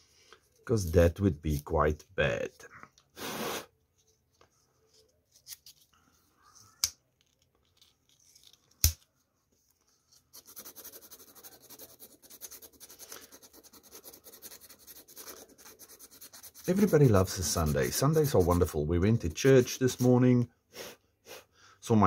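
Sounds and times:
sandpaper rubbing wood: 10.4s - 20.2s.

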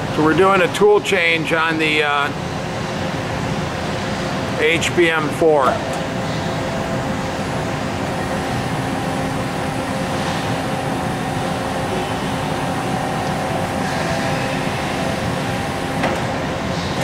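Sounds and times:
machine mechanical drone with tones: 5.7s - 17.0s.

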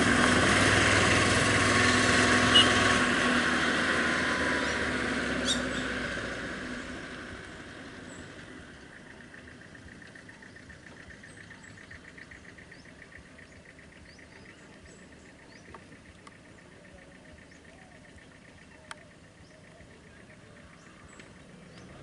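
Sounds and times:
low steady rumble: 0.0s - 22.0s
insects trilling: 8.7s - 22.0s.

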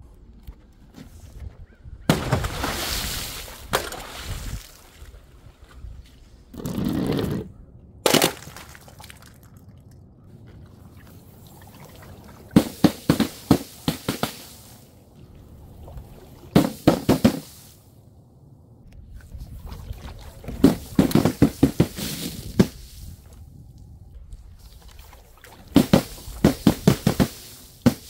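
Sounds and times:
containers bursting on impact: 12.5s - 14.6s.

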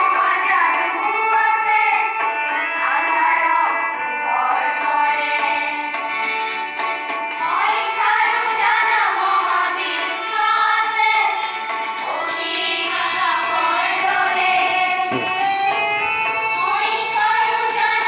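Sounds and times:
song with singing voice: 0.0s - 18.0s.

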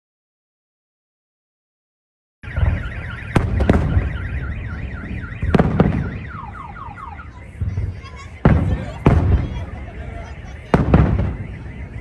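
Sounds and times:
car alarm warbling and chirping: 2.4s - 12.0s
fireworks bursting with bangs: 2.5s - 12.0s.

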